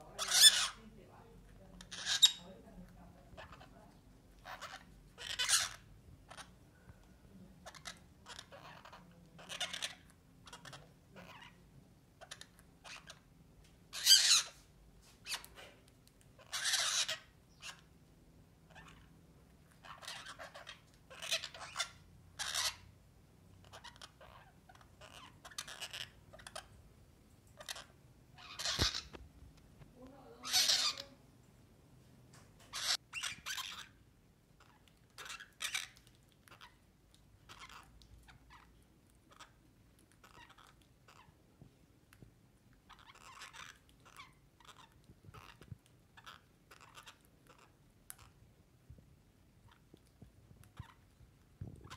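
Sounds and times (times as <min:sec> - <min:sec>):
parakeets squawking: 0:00.0 - 0:01.0, 0:01.7 - 0:02.6, 0:03.3 - 0:06.5, 0:07.6 - 0:11.6, 0:12.2 - 0:13.3, 0:13.9 - 0:14.6, 0:16.4 - 0:17.9, 0:18.7 - 0:19.1, 0:19.8 - 0:22.9, 0:23.6 - 0:26.7, 0:27.6 - 0:29.2, 0:30.3 - 0:31.2, 0:32.6 - 0:34.0, 0:34.6 - 0:36.8, 0:37.4 - 0:39.6, 0:40.2 - 0:41.3, 0:42.8 - 0:48.4.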